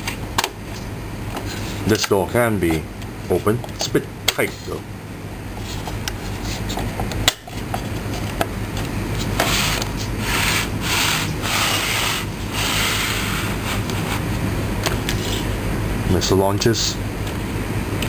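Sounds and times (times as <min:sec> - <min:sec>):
rubbing strokes: 0:09.2 - 0:14.3.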